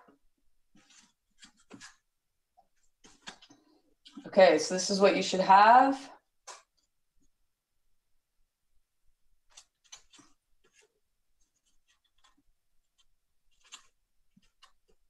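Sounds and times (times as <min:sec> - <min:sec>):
paper rustling: 0:00.7 - 0:02.1, 0:02.7 - 0:04.2, 0:09.4 - 0:15.0.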